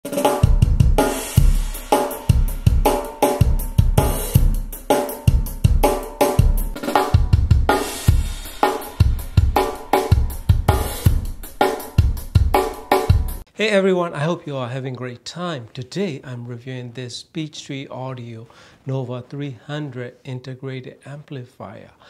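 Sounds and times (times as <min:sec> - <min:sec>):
drum solo over loudspeakers: 0:00.0 - 0:13.4
kick drum hits: 0:05.3 - 0:13.4.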